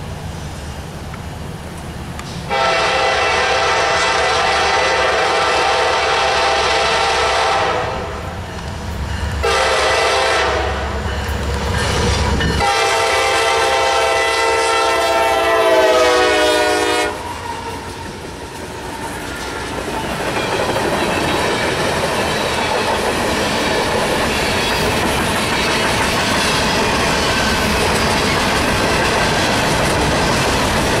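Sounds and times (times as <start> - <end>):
locomotive horn blasts: 2.5 - 8.2, 9.4 - 11.0, 12.6 - 17.4
train wheels clickety-clack: 8.1 - 14.0, 16.4 - 31.0.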